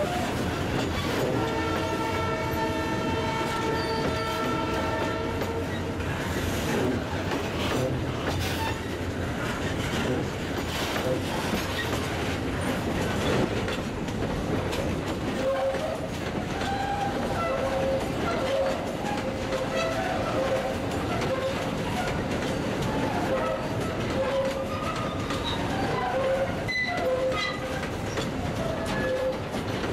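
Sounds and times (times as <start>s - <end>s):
freight train wheels clattering: 0.0s - 29.9s
thin wheel squeal: 24.3s - 27.8s.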